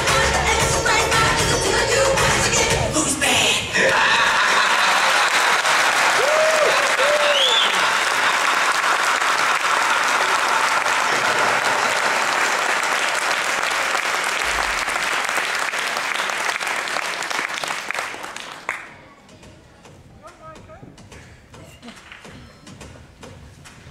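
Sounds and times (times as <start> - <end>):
audience applauding: 3.8 - 19.0.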